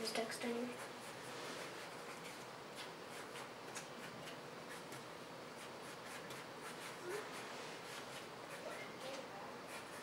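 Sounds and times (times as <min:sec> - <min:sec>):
pen scratching on paper: 0:05.6 - 0:10.0.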